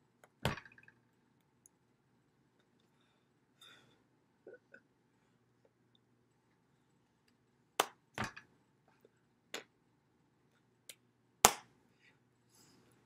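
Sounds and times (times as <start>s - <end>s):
hands slapping together: 7.8s - 8.3s, 10.9s - 11.7s.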